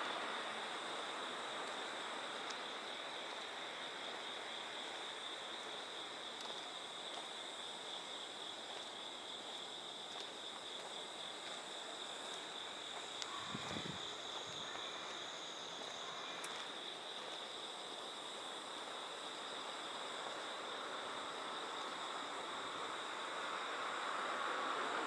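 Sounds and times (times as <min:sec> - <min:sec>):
background hiss: 0:00.0 - 0:25.0
insects singing: 0:11.2 - 0:23.9.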